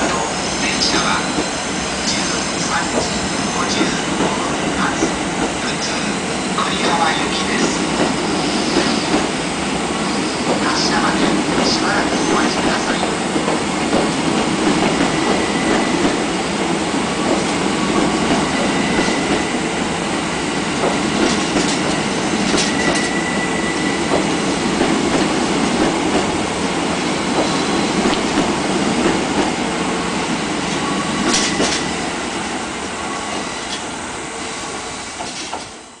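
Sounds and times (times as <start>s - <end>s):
train wheels rumbling: 0.0s - 36.0s.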